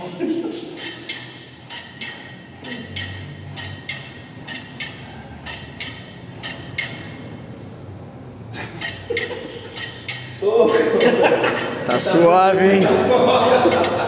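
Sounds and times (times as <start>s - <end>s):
cable machine clinking: 0.7s - 7.4s, 8.6s - 12.2s.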